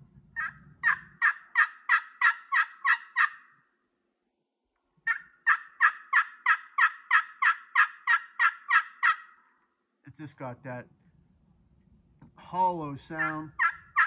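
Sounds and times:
turkey pot call yelps: 0.3 - 3.6, 5.0 - 9.6, 13.1 - 14.0.

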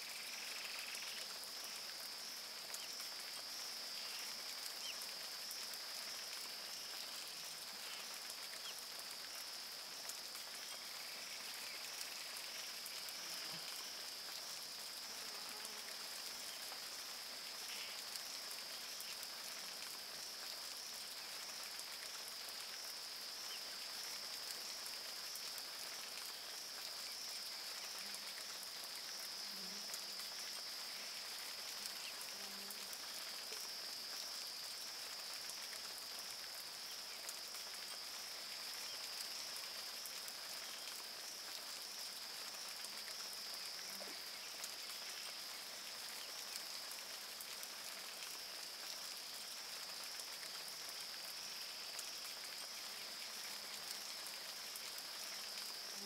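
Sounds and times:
rain and drips: 0.0 - 56.0.

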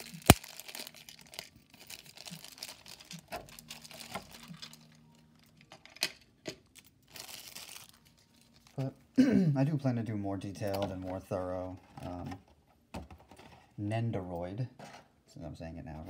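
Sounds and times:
plastic bag crinkling: 0.0 - 6.0, 6.6 - 9.0.

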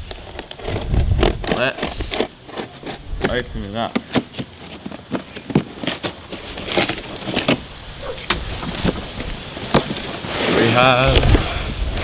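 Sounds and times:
cardboard ripping apart: 4.1 - 12.0.

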